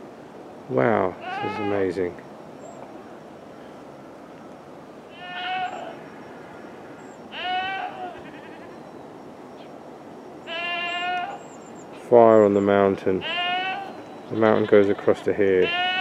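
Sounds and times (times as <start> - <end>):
low background hiss: 0.0 - 16.0
farm animal bleating: 1.2 - 2.0, 5.1 - 6.0, 7.3 - 8.8, 10.4 - 11.4, 13.2 - 16.0.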